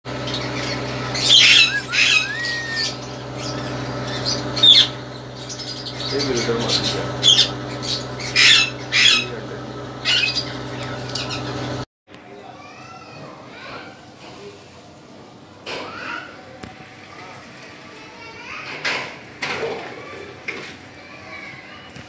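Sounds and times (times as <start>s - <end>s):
parrot squawking: 0.1s - 11.7s
parrot gliding whistle: 1.2s - 3.0s.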